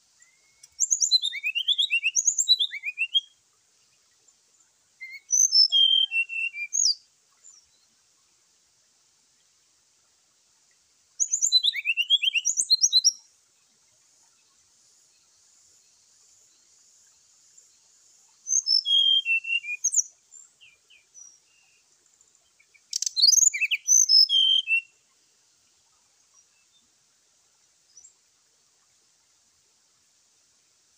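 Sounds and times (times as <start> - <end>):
bird chirping song: 0.0 - 8.2, 11.2 - 26.9
faint high hiss: 0.0 - 30.9.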